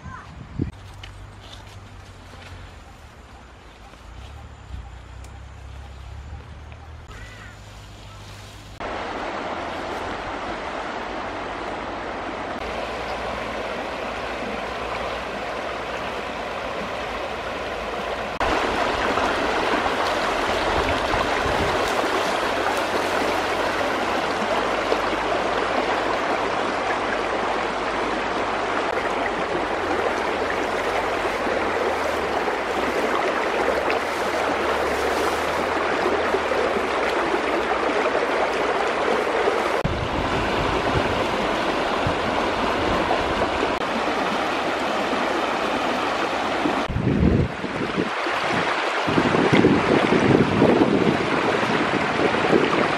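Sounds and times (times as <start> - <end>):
stream rushing and gurgling: 0.0 - 52.9.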